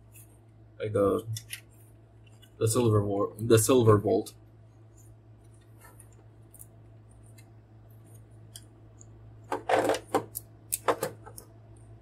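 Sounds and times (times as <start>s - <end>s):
plastic clattering and crackling: 9.5s - 11.4s.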